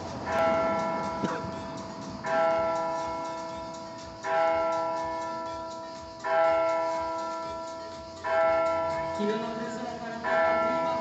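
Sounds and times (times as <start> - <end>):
electronic church bell tolling: 0.3 - 3.6, 8.3 - 11.0.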